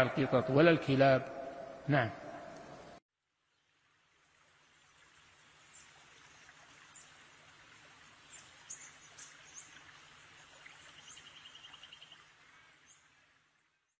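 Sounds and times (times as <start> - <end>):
steady outdoor hiss: 0.0 - 13.9
bird chirps: 10.4 - 13.1.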